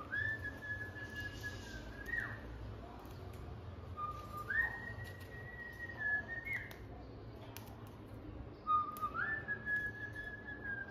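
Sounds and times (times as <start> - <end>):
cockatiel whistling: 0.0 - 2.4, 4.0 - 6.8, 8.6 - 10.9.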